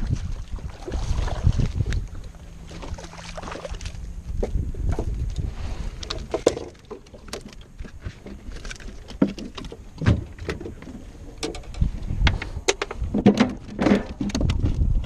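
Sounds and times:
wind rumbling on microphone: 0:00.0 - 0:15.0
knocks and clunks of fish handling: 0:00.2 - 0:05.4, 0:06.0 - 0:15.0
cooler lid opening and shutting: 0:08.8 - 0:14.9.

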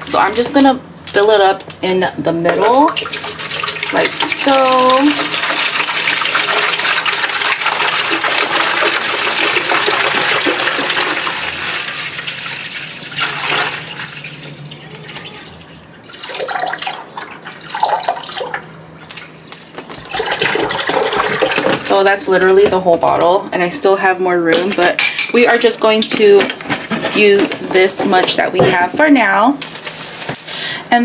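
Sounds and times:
water pouring into a tank: 0:02.8 - 0:18.7, 0:20.0 - 0:21.8.

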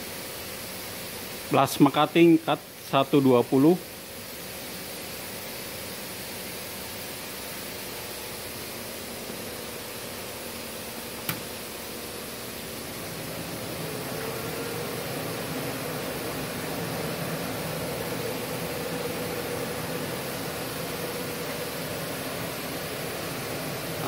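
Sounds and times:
cooling fan whirring: 0:00.0 - 0:24.0
sharp click: 0:11.2 - 0:11.4.

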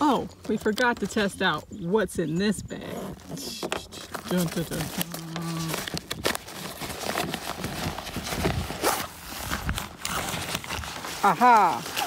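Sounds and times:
fabric bag rustling: 0:02.9 - 0:12.0.

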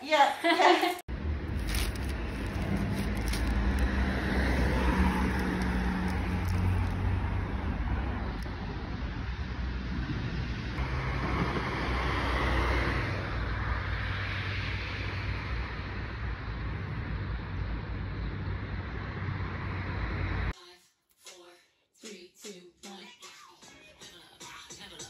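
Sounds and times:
road traffic rumble: 0:01.1 - 0:20.6.

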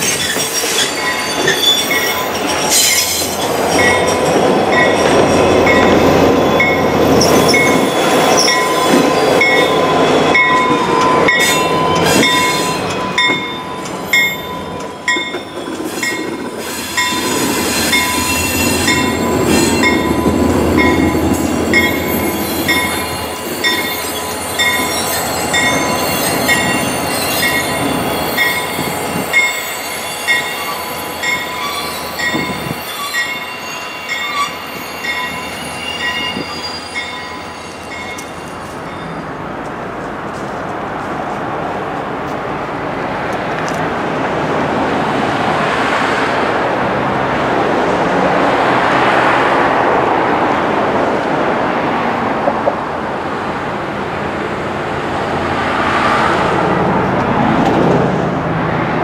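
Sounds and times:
wheels squealing on rails: 0:00.0 - 0:40.6
train rumbling by: 0:00.0 - 0:59.0
bell dinging: 0:00.1 - 0:16.4, 0:17.9 - 0:39.2.

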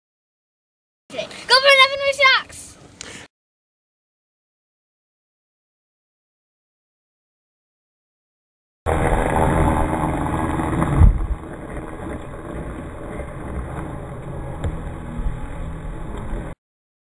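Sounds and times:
model airplane motor running: 0:08.9 - 0:16.6
wind noise on microphone: 0:08.9 - 0:16.6.

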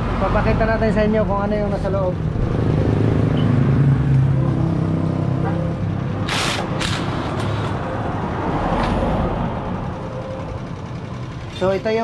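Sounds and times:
drill harsh bursts: 0:06.2 - 0:07.7.

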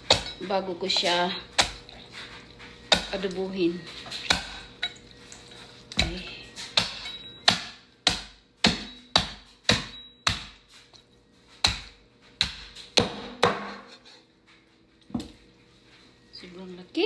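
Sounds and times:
cleaver chopping on plastic board: 0:06.8 - 0:10.6, 0:11.6 - 0:13.9.

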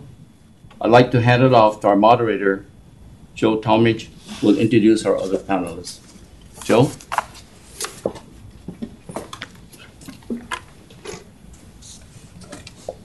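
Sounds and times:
microphone handling clicks and rustles: 0:04.3 - 0:13.0.

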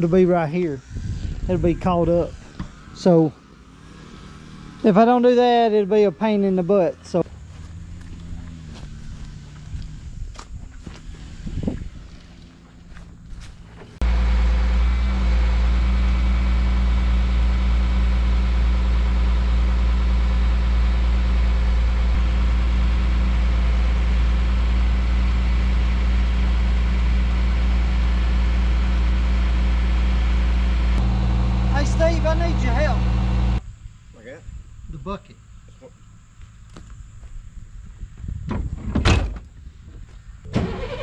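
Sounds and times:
truck engine running: 0:01.5 - 0:33.6
boom hydraulics: 0:13.7 - 0:33.6.

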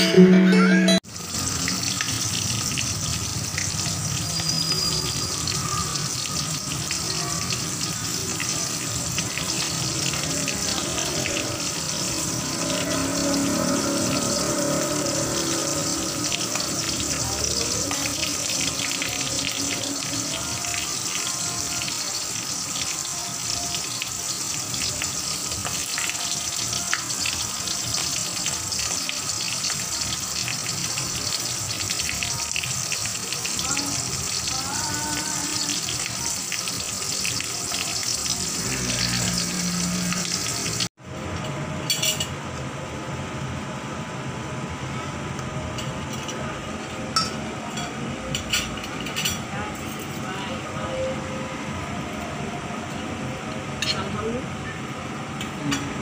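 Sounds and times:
fish sizzling in oil: 0:01.1 - 0:40.9.

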